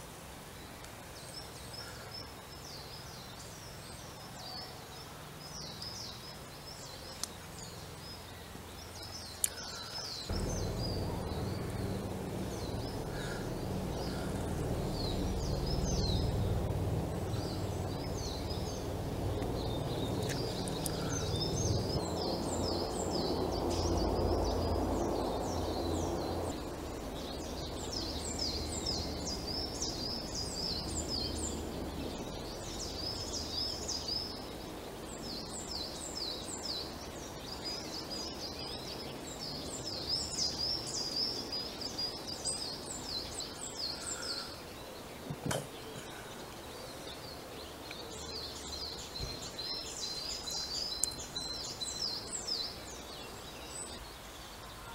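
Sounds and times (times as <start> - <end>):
songbirds calling: 0.0 - 54.9
low rumble: 10.3 - 34.4.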